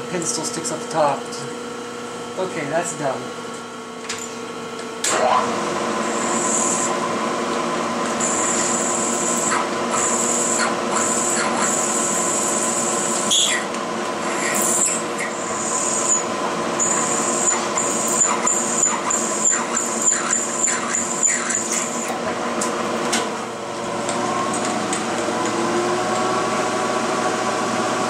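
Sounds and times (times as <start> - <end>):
drill squealing in metal: 8.2 - 22.2.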